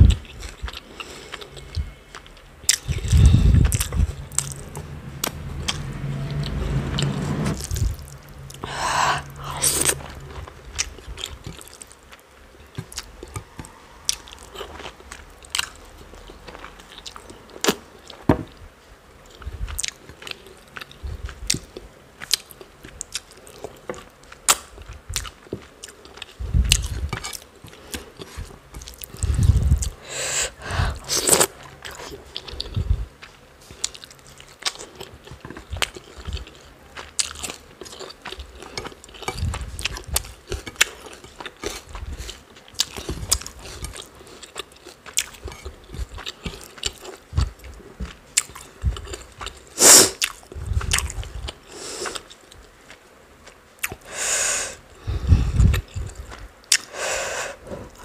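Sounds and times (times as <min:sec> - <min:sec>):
chewing and mouth sounds: 0:00.0 - 0:06.6, 0:07.6 - 0:18.2, 0:19.2 - 0:30.0, 0:30.9 - 0:54.1, 0:54.8 - 0:57.0
heavy low thuds: 0:02.9 - 0:10.7.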